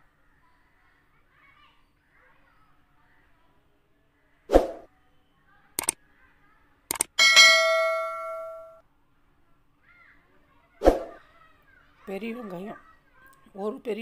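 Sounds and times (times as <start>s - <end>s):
mouse clicks: 6.9s - 7.1s
bell ding: 7.2s - 8.8s.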